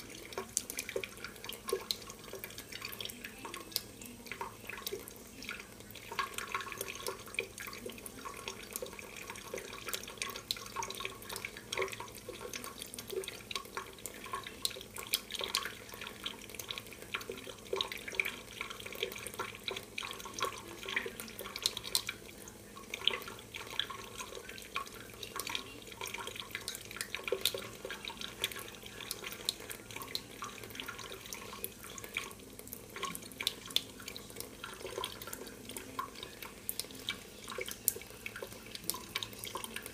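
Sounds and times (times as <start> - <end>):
faucet water trickling into sink: 0.0 - 39.9.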